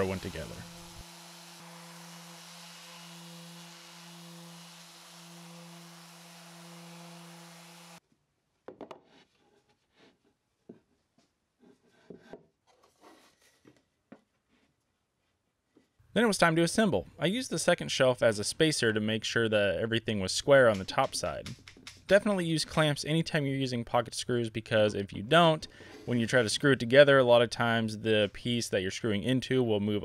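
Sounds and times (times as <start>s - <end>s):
orbital sander on wood: 0.0s - 8.0s.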